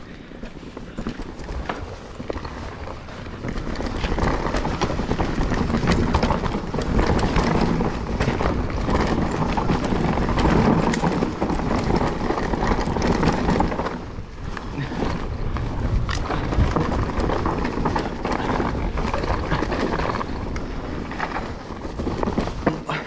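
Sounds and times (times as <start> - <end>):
bike rattling and clicking: 0.0 - 23.0
bike tyres rolling over dirt: 0.0 - 23.0.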